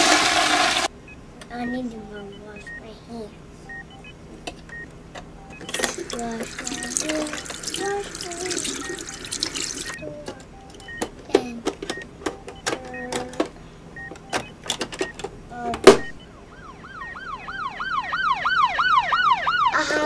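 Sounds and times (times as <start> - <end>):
toy siren wailing: 16.5 - 20.0.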